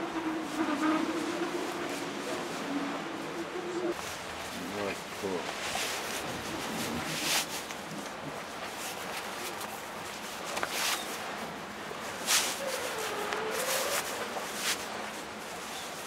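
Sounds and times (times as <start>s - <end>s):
fabric rustling: 12.2s - 15.1s.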